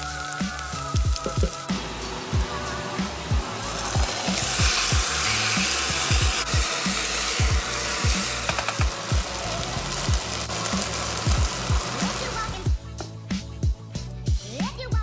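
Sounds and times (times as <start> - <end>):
meat sizzling in a pot: 0.0 - 12.7
electronic music with bass kicks: 0.8 - 1.8, 12.7 - 15.0.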